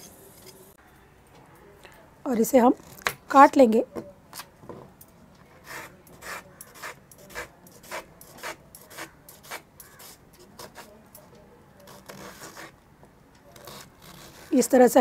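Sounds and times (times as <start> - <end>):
knife slicing onion on board: 5.6 - 10.9.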